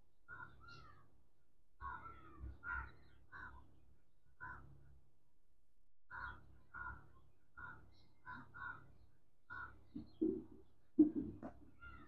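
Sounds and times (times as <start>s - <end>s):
crows cawing: 0.3s - 1.0s, 1.8s - 3.6s, 4.4s - 4.7s, 6.1s - 8.9s, 9.5s - 10.4s, 11.8s - 12.0s.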